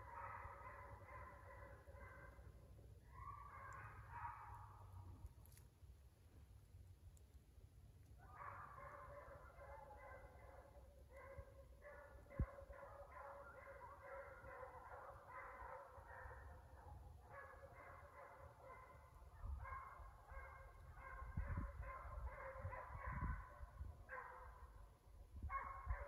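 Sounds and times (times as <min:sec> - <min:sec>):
hounds baying: 0:03.1 - 0:04.8, 0:08.2 - 0:23.5.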